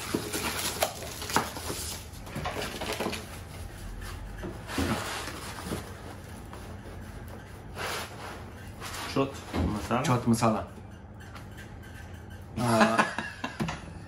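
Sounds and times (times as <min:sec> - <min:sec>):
paper and cardboard rustling: 0:00.0 - 0:09.9.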